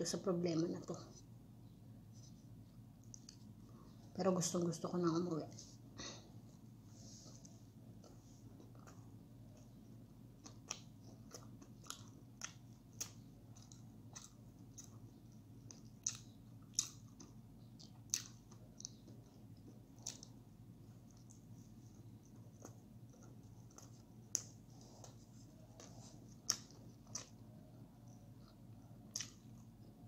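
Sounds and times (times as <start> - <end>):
faint steady hum: 0.0 - 30.0
person chewing food: 3.0 - 3.9, 7.2 - 30.0.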